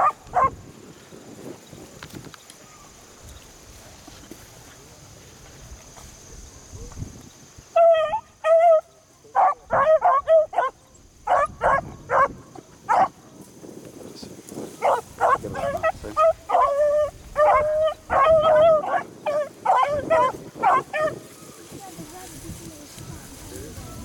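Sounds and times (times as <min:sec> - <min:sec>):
beagles baying and barking: 0:00.0 - 0:00.6, 0:07.7 - 0:13.2, 0:14.8 - 0:21.7.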